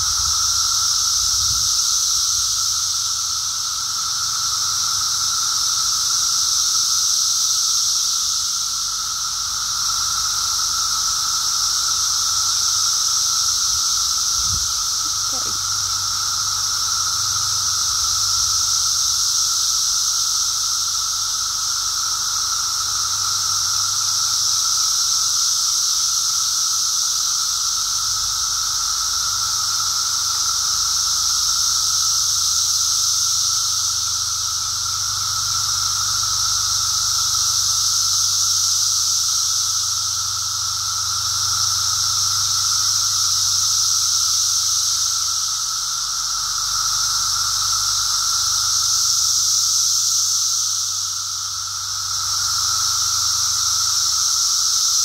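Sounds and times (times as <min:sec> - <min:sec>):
cicadas droning: 0:00.0 - 0:55.0.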